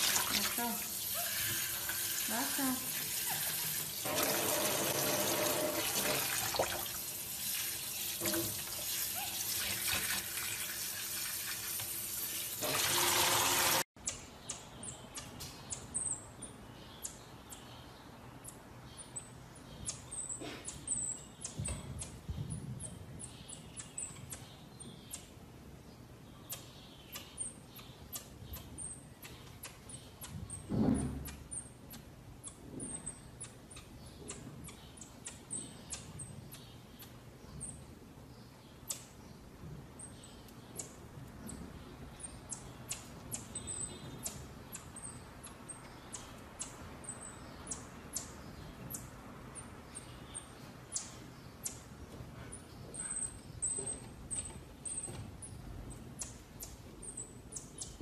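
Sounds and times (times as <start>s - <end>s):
water tap running: 0.0s - 13.8s
monkeys chirping: 0.6s - 1.7s, 2.3s - 4.0s.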